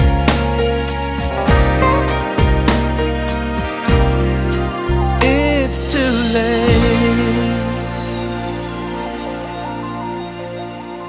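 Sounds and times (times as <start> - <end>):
sustained instrumental chord: 1.2 - 5.8.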